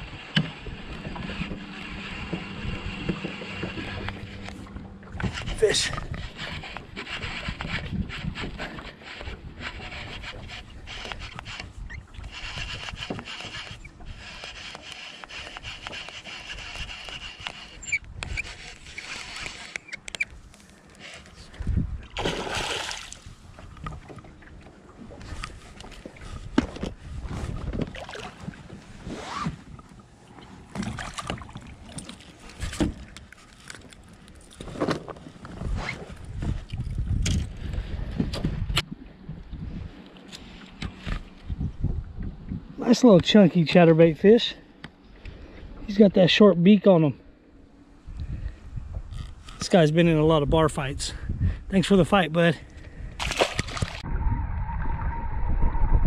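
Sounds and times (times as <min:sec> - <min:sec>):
wind on the microphone: 0:00.0 - 0:14.6, 0:21.4 - 0:29.9, 0:35.3 - 0:40.1, 0:40.7 - 0:43.2, 0:47.9 - 0:56.0.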